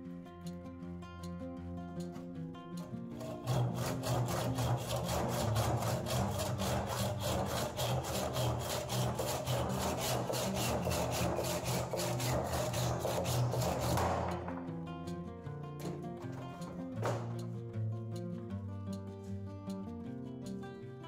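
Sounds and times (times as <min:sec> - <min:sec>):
hand saw cutting wood: 0:03.2 - 0:14.7, 0:15.9 - 0:17.4.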